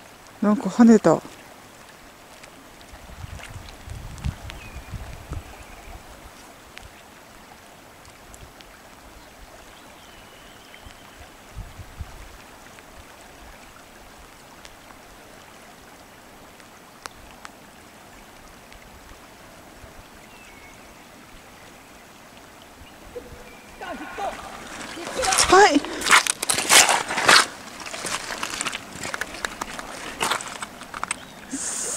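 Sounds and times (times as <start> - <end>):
river rushing over stones: 20.9 - 31.9.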